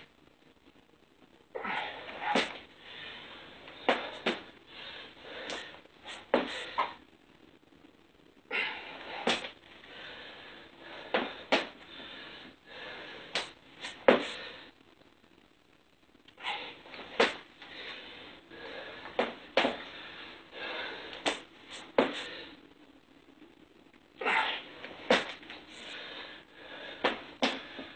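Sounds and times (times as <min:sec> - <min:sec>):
forceful hissy breaths: 0:01.6 - 0:07.0, 0:08.5 - 0:14.8, 0:16.4 - 0:22.6, 0:24.2 - 0:27.9.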